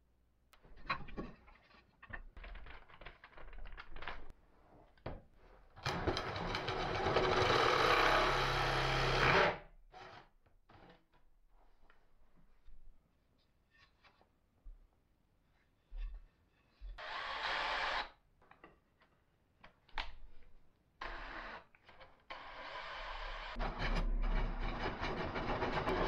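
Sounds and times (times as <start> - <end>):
drill cutting wood: 6.5 - 10.2.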